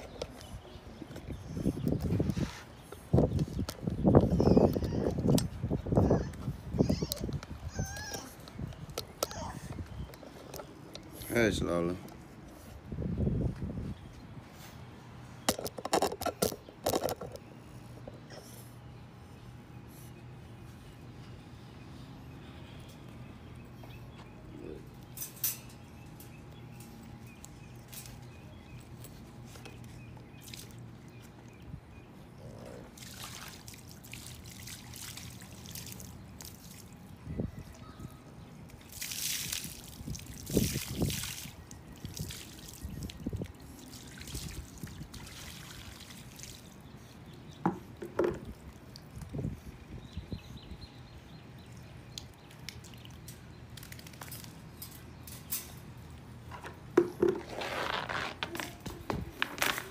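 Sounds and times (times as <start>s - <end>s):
water poured from bucket splashing: 33.0s - 36.9s, 38.9s - 43.0s, 43.9s - 46.7s.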